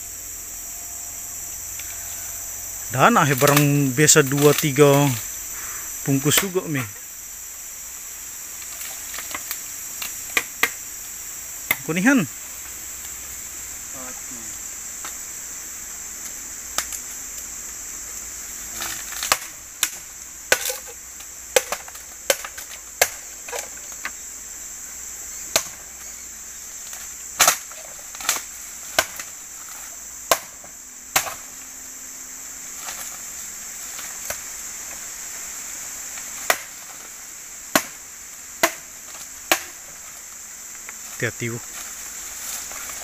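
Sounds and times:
high insect drone: 0.0 - 43.0
machete chopping bamboo: 9.1 - 10.8, 18.9 - 23.8, 25.5 - 25.8, 26.9 - 29.3, 30.2 - 31.5, 36.3 - 37.1, 37.7 - 38.0, 38.6 - 40.0.

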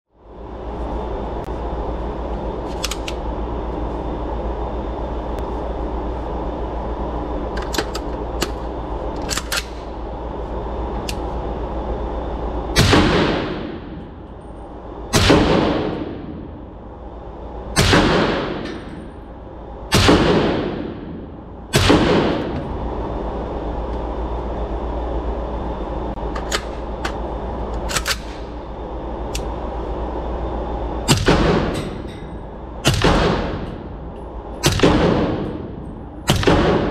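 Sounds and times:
steady drone: 0.1 - 36.9
rifle shots echoing: 15.1 - 16.2, 19.9 - 21.0, 21.7 - 22.6, 32.8 - 33.8, 34.6 - 35.6, 36.2 - 36.9.

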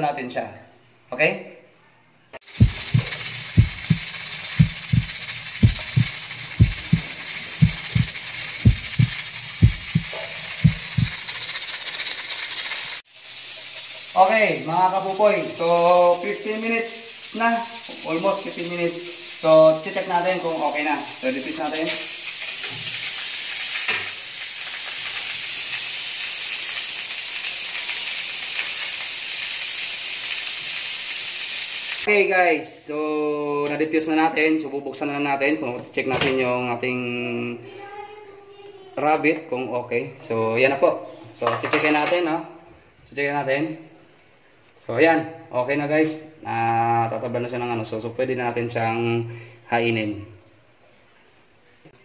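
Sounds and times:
pressure cooker valve rattling: 2.4 - 32.1
steam hissing: 2.4 - 32.1.

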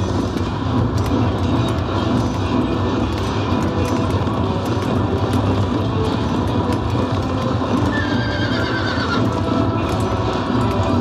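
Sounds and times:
horse whinnying: 7.8 - 9.6.

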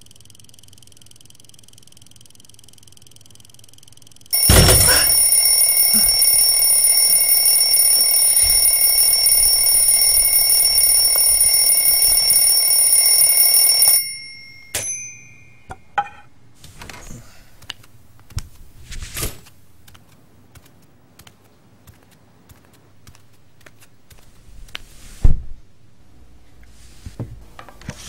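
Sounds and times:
alarm clock ringing: 4.3 - 15.8.

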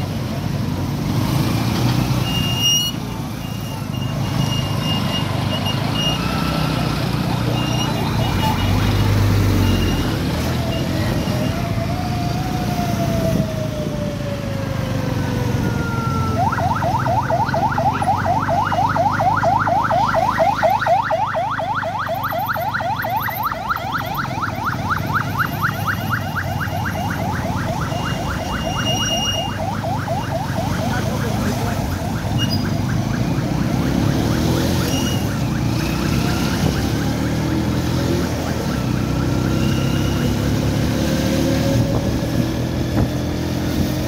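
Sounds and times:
electronic siren: 2.2 - 43.1
idling vehicle engines: 14.6 - 33.9.

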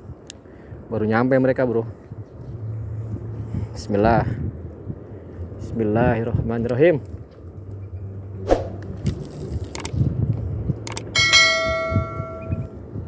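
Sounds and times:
sharp clicks: 9.7 - 10.0, 10.8 - 11.1
bell chime ring: 11.2 - 12.7.

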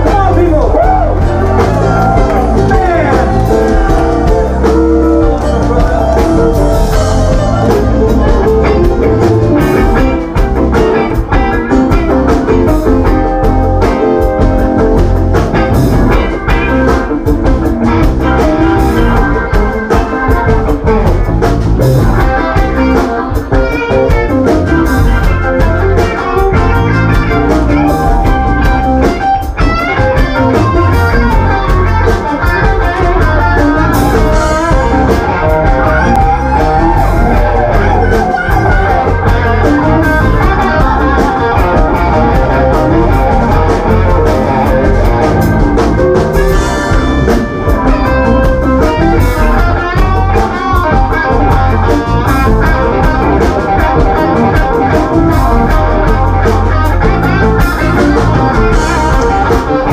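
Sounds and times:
drum kit: 0.0 - 59.9
electric guitar lead lines: 0.0 - 59.9
keyboard: 0.0 - 59.9.

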